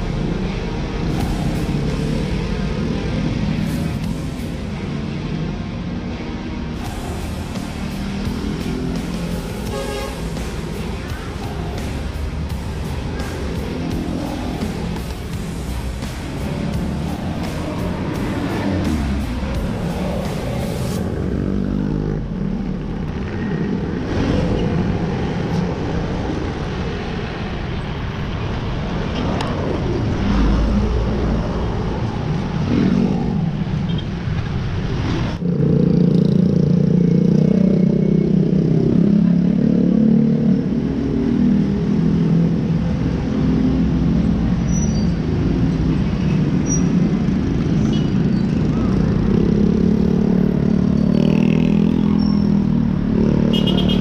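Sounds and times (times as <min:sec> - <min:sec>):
passing motor vehicles: 0:00.0 - 0:54.0.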